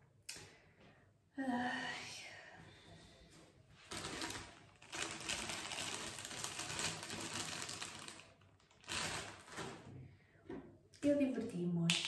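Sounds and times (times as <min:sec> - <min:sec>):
plastic packet crinkling: 0:03.9 - 0:09.9.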